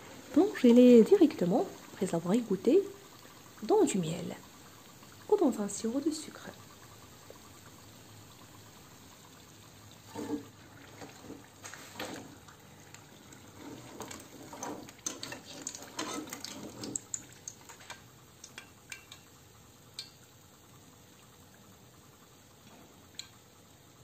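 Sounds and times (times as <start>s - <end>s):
metal utensils scraping frying pan: 10.1s - 10.5s, 13.5s - 18.0s.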